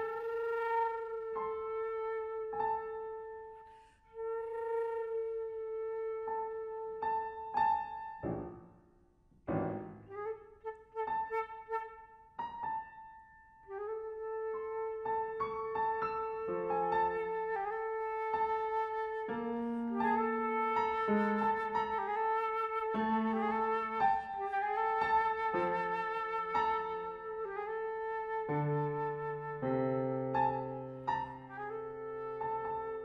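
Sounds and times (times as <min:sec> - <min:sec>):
flute holding sustained notes: 0:00.0 - 0:08.4, 0:09.6 - 0:12.3, 0:13.7 - 0:33.0
grand piano chords: 0:06.3 - 0:33.0.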